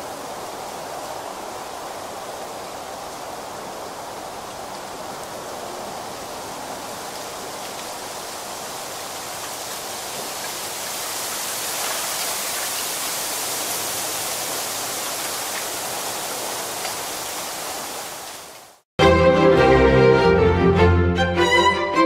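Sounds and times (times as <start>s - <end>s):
wind rustling bamboo leaves: 0.0s - 18.8s.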